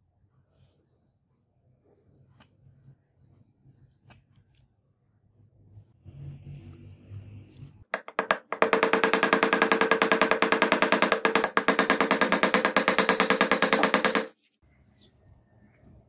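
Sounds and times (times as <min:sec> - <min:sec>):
rapid metallic tapping: 0:08.0 - 0:14.4.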